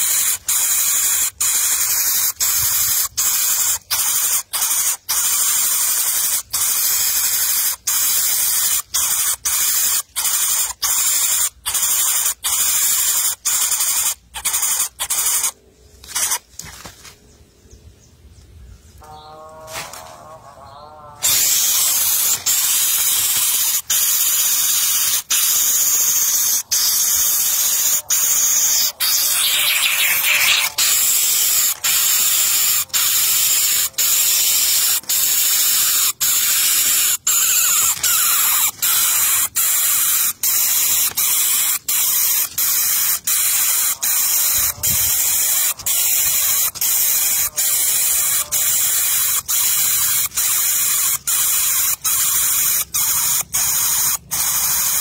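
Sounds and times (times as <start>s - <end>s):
nestling hissing: 0.0s - 16.6s, 21.2s - 55.0s.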